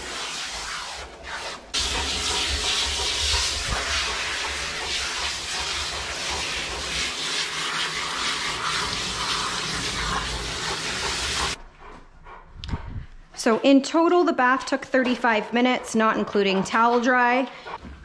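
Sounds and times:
hose spray hissing on fur: 0:00.0 - 0:11.6.

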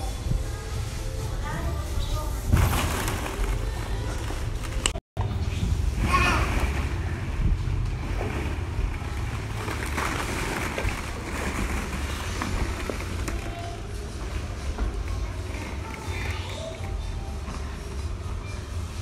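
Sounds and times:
child's voice: 0:00.0 - 0:02.6, 0:06.0 - 0:06.7, 0:15.2 - 0:17.6
plastic balls clattering: 0:02.5 - 0:05.0, 0:08.0 - 0:17.0
steady low rumble: 0:03.4 - 0:16.0.

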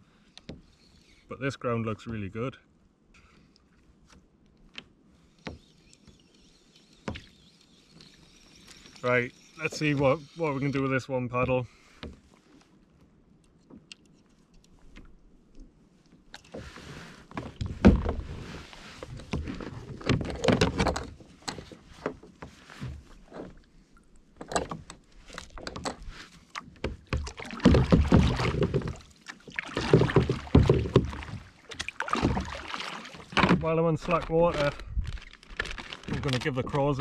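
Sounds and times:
paddle strokes splashing in water: 0:25.1 - 0:36.4.

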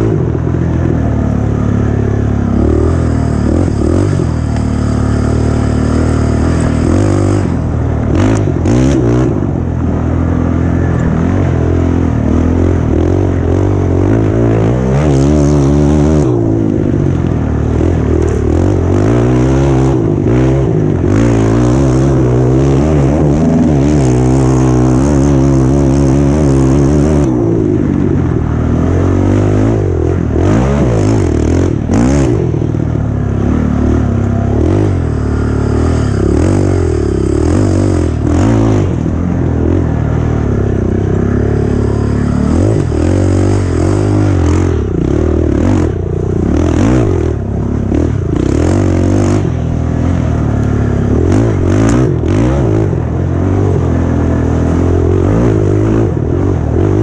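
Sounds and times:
race engine revving: 0:28.8 - 0:53.7.

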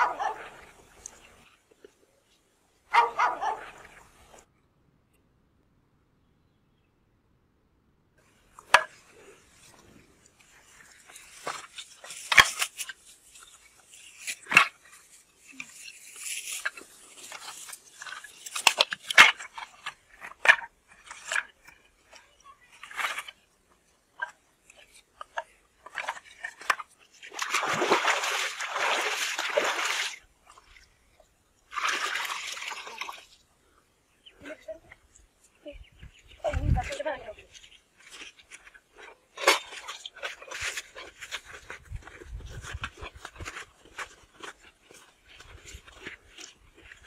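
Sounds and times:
water splashing: 0:25.9 - 0:30.9, 0:31.7 - 0:33.4.

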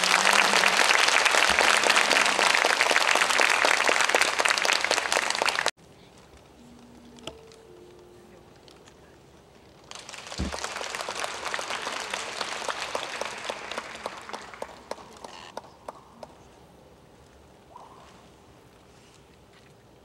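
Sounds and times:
audience applause: 0:00.0 - 0:05.8, 0:09.9 - 0:16.3.

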